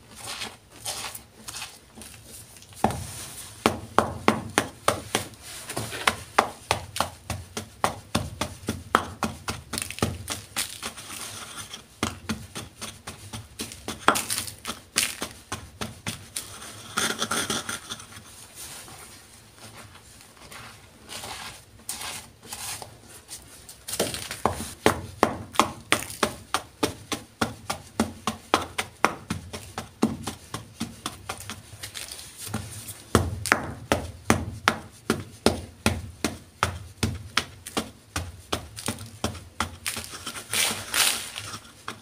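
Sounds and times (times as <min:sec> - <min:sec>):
hands rustling powder: 0:00.0 - 0:42.0
pestle pounding chalk in bowl: 0:02.7 - 0:18.0, 0:23.9 - 0:42.0.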